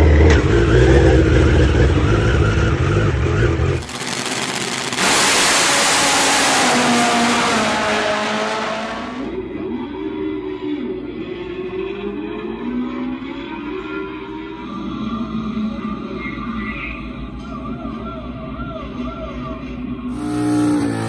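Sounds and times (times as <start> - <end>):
drag bike engine: 0.0 - 9.6, 20.1 - 21.0.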